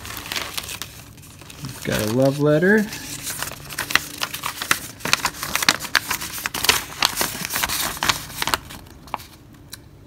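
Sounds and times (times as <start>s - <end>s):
paper crinkling and rustling: 0.0s - 9.5s.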